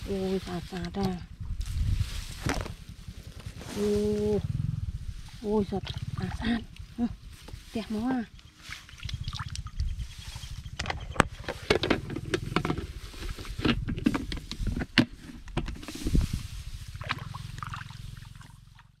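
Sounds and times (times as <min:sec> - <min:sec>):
rustling footsteps through plants: 0:00.0 - 0:04.4, 0:06.5 - 0:09.1, 0:12.4 - 0:15.0, 0:15.9 - 0:18.8
steady low throb: 0:01.2 - 0:11.4.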